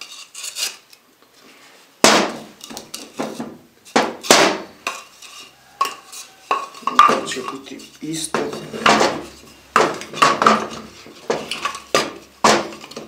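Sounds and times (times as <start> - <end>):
wooden boards knocking and clattering: 2.0 - 5.0, 6.5 - 7.6, 8.2 - 13.0.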